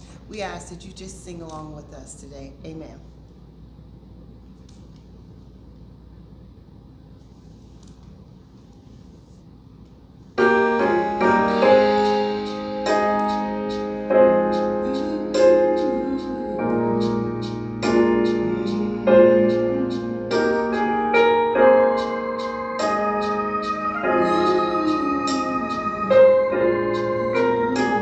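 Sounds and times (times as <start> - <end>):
sustained piano chords: 10.4 - 28.0.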